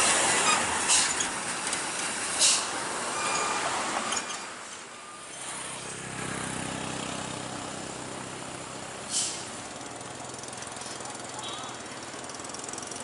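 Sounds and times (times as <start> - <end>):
air hiss: 2.3 - 2.8, 9.0 - 9.5
truck engine running: 5.2 - 13.0.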